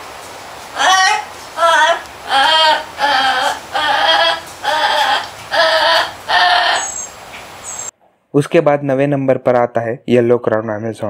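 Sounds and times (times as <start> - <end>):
parrot singing high notes: 0.8 - 7.9.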